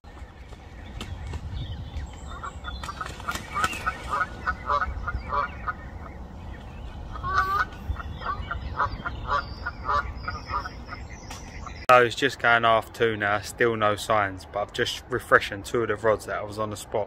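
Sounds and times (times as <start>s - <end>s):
steady low rumble: 0.1s - 16.5s
geese honking: 2.2s - 11.8s.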